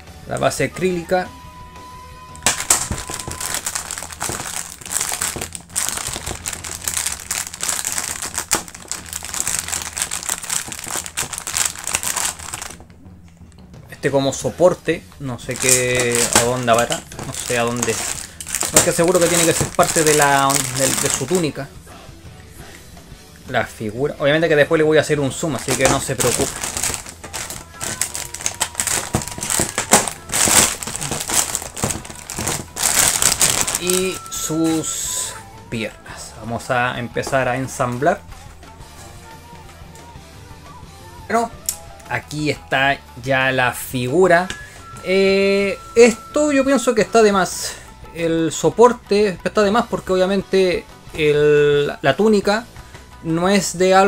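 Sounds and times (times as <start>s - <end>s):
plastic bags crinkling: 2.4s - 12.8s, 15.5s - 21.6s, 25.3s - 34.9s.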